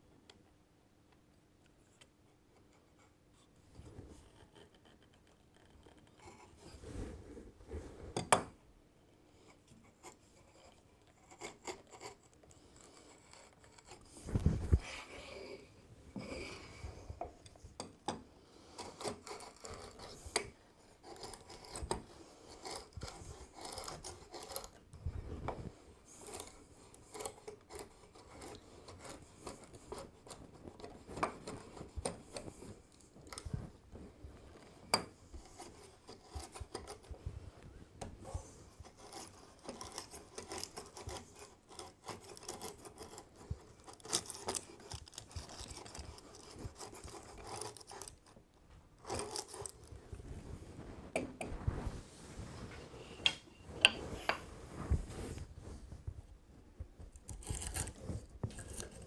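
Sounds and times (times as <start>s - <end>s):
plane blade shaving wood: 22.5s - 24.8s.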